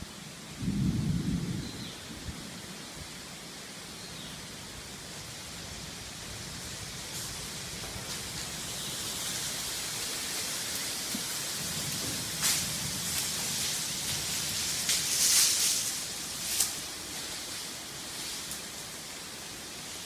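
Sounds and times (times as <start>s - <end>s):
rain hissing: 0.0s - 20.0s
thunder rumble: 0.4s - 2.6s, 5.7s - 16.4s.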